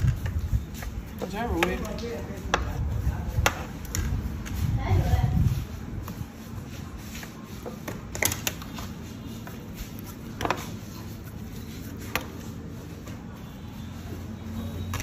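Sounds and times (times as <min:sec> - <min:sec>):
light taps on plastic-covered table: 0:00.0 - 0:04.6.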